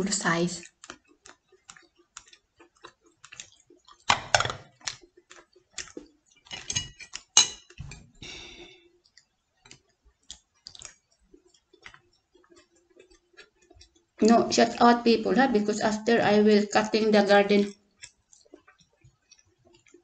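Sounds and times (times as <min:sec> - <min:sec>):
eating clicks: 0:00.0 - 0:08.4, 0:09.0 - 0:20.0
tableware clattering: 0:04.1 - 0:04.6, 0:06.5 - 0:08.1
utensils clinking against dish: 0:06.5 - 0:08.0.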